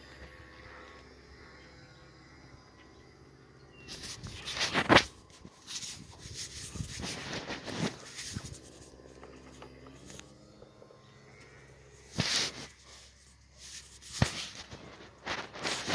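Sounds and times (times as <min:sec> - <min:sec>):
scuffs and bumps on microphone: 0:03.9 - 0:10.2, 0:12.1 - 0:15.9.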